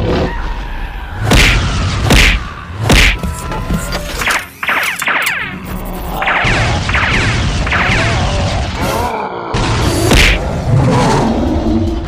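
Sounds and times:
rumbling music: 0.0s - 12.0s
swooshes and hits: 4.2s - 9.0s, 9.6s - 10.6s.

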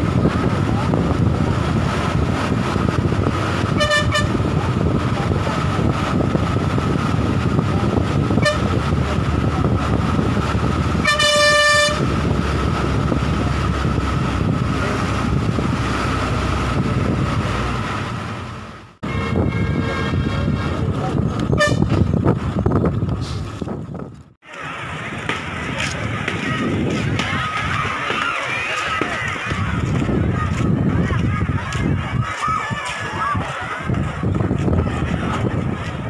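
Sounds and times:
bus engine and road rumble: 0.0s - 36.0s
bus horn: 3.6s - 4.6s, 8.4s - 8.8s, 11.0s - 12.2s, 19.0s - 22.0s.

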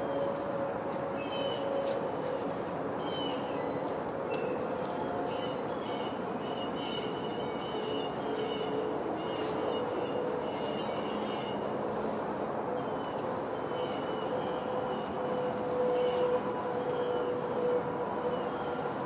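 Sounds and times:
steady hum and rush: 0.0s - 19.0s
small birds chirping: 3.1s - 13.2s.

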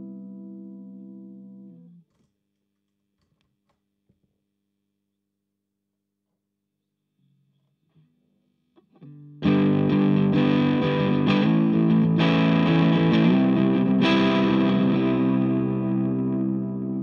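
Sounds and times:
overdriven electric guitar chords: 8.9s - 17.0s.

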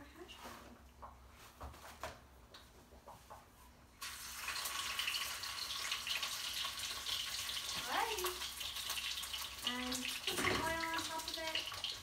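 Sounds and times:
food sizzling in oil: 4.0s - 12.0s.

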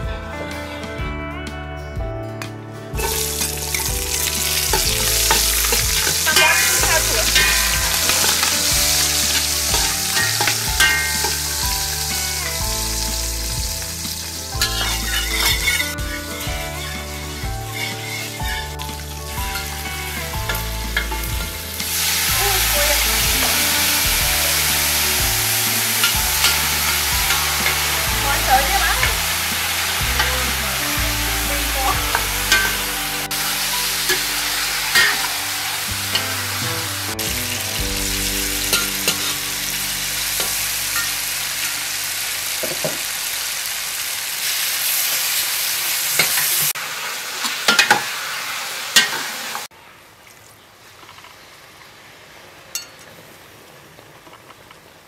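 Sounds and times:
soft background music: 0.0s - 42.8s
chicken sizzling in a pot: 3.0s - 49.7s
utensil scraping metal pot: 14.6s - 18.9s, 31.8s - 37.2s.

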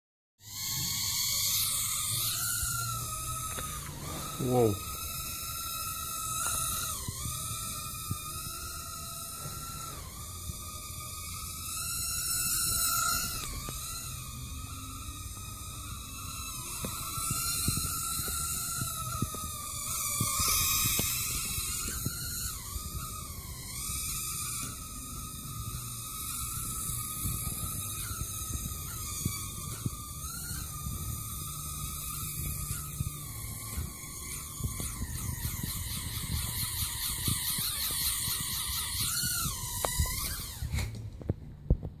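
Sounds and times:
small drone motors whining: 0.4s - 42.0s.

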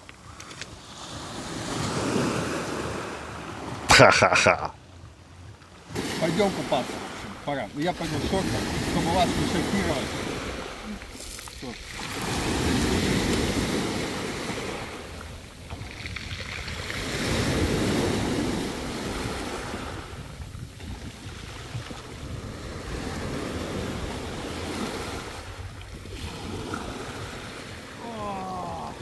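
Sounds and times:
surf washing over pebbles: 5.8s - 29.0s.

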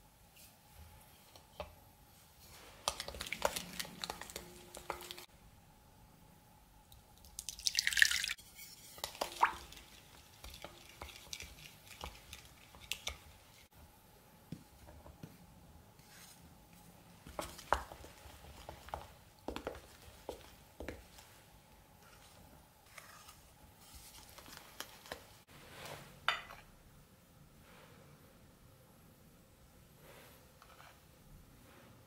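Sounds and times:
wooden spoon stirring in a bowl: 0.4s - 5.3s, 8.4s - 13.8s, 14.4s - 26.6s, 30.0s - 32.0s
liquid pouring into a bowl: 7.2s - 8.4s, 9.0s - 13.0s.

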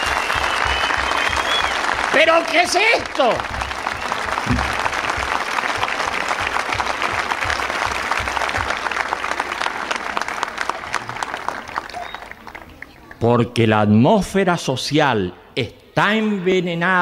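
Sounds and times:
crowd applauding: 0.0s - 13.3s.

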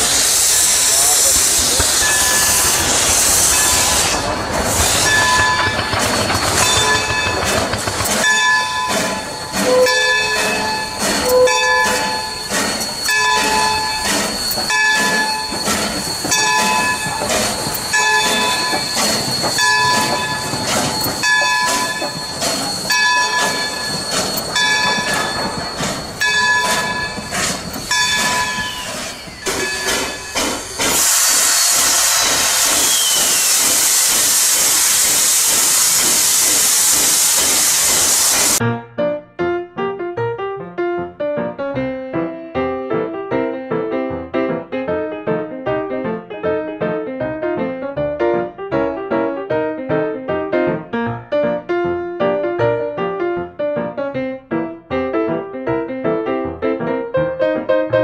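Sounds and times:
loud hiss of steam: 0.0s - 38.6s
train wheels clattering on rails: 0.0s - 38.6s.

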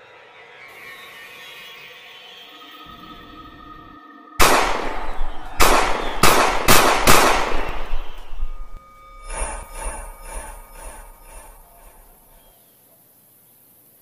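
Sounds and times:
faint low drone: 2.6s - 12.6s
heavy ringing blows: 2.9s - 12.5s.

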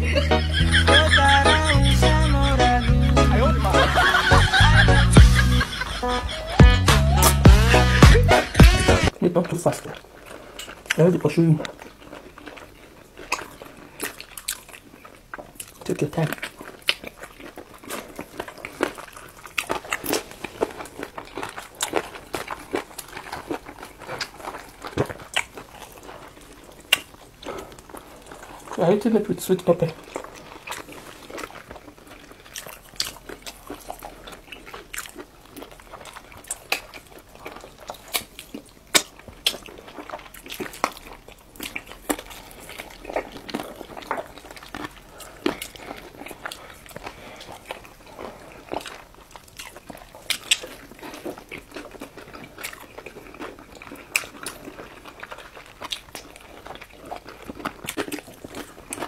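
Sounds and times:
people chewing: 0.0s - 59.0s
sharp crunches of biting: 29.9s - 59.0s.

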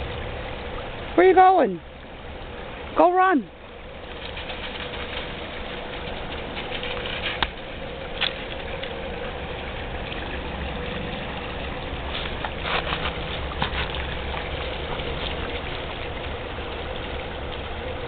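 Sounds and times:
creek water running: 0.0s - 18.0s
dog splashing through water: 4.0s - 17.9s.

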